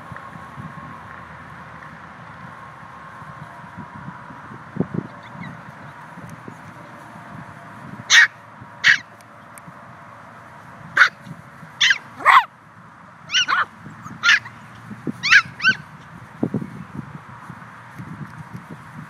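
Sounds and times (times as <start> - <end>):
puppies yipping and barking: 5.0 - 6.7, 8.1 - 9.2, 11.0 - 12.5, 13.3 - 16.2.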